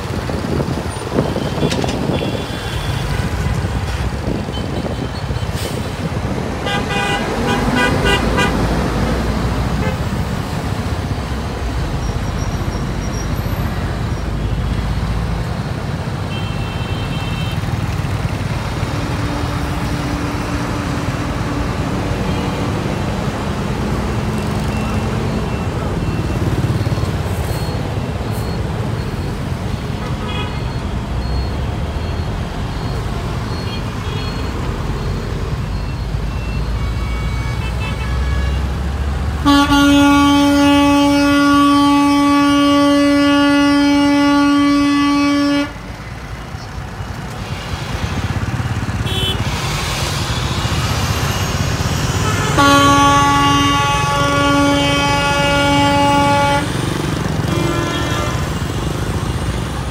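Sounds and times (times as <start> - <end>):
heavy road traffic rumble: 0.0 - 59.9
vehicle horn blast: 6.6 - 8.6, 39.4 - 45.8, 49.0 - 49.5, 52.2 - 56.8, 57.5 - 58.7.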